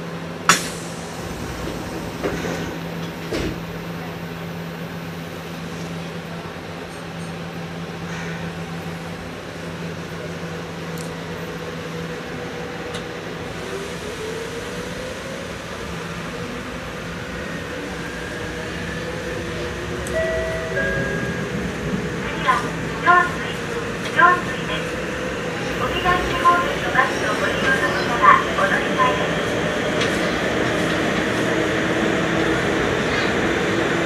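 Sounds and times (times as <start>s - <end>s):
electric train low hum: 0.0s - 34.0s.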